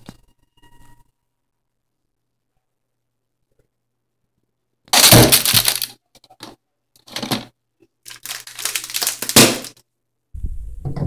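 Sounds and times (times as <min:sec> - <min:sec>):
plastic bag crinkling: 0:04.9 - 0:06.0, 0:08.0 - 0:09.8.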